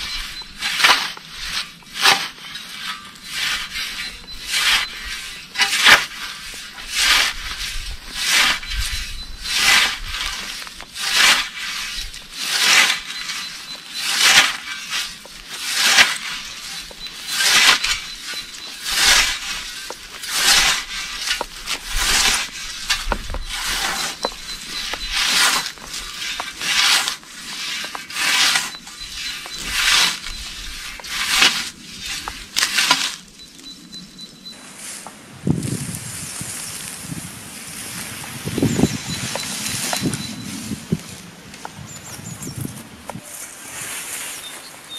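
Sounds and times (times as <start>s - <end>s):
scythe swishing through grass: 0.0s - 33.3s.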